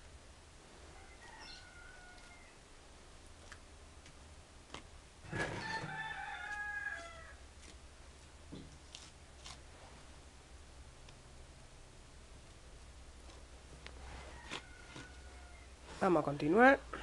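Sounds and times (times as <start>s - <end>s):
rooster crowing: 0.9s - 2.6s, 5.3s - 7.4s, 14.2s - 15.8s.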